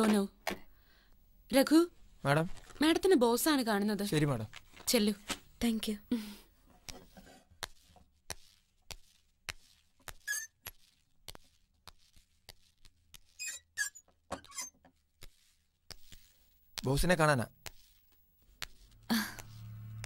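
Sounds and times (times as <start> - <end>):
shoe squeaks: 10.1 - 11.0, 13.2 - 14.8.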